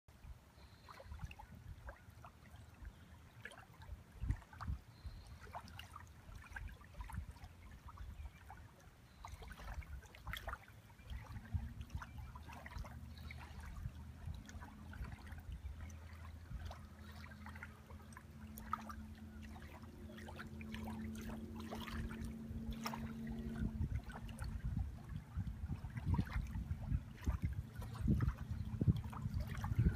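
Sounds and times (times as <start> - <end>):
water lapping at shore: 0.1 - 29.9
low engine hum: 10.7 - 29.9.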